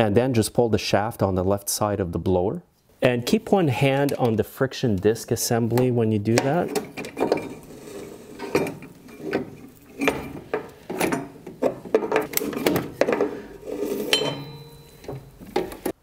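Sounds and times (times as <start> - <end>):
metal clinks and knocks: 6.4 - 16.0
metallic ring: 13.8 - 15.4.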